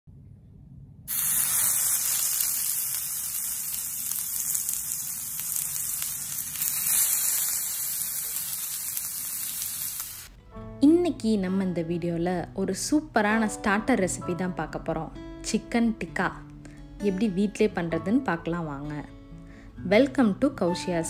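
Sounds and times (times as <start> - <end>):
oil sizzling on grill pan: 1.1 - 10.3.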